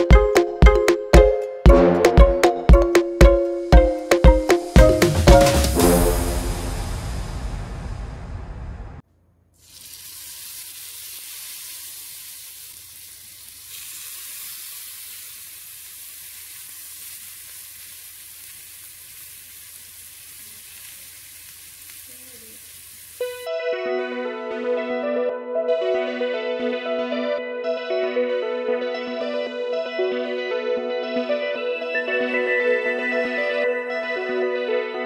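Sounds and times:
music: 0:00.0 - 0:07.9, 0:23.2 - 0:35.0
chicken sizzling on grill pan: 0:09.6 - 0:23.4.

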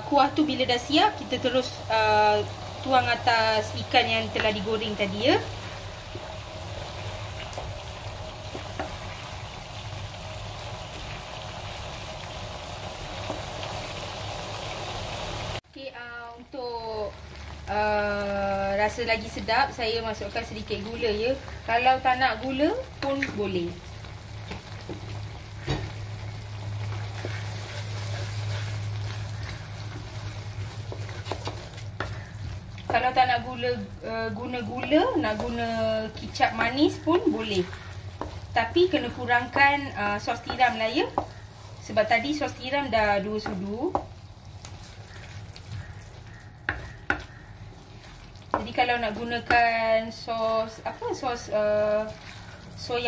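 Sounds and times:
sauce bubbling in a wok: 0:00.0 - 0:53.0
wooden spatula stirring: 0:24.4 - 0:53.0
spatula tapping a pan: 0:40.4 - 0:41.4, 0:43.4 - 0:44.1, 0:45.1 - 0:47.6, 0:48.5 - 0:49.8
spatula knocking against pan: 0:46.4 - 0:47.4.

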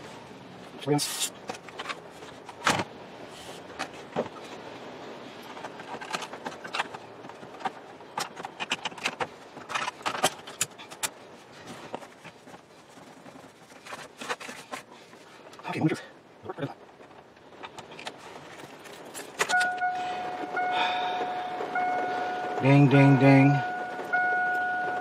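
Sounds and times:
plastic clicks and rattles: 0:05.4 - 0:11.2.

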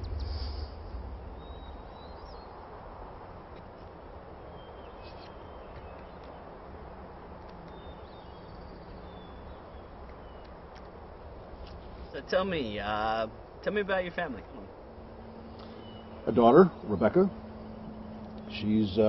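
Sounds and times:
faint bird chirps: 0:00.0 - 0:02.8, 0:04.4 - 0:06.6, 0:07.6 - 0:10.6, 0:15.2 - 0:19.0
background hiss and low rumble: 0:00.0 - 0:19.0.

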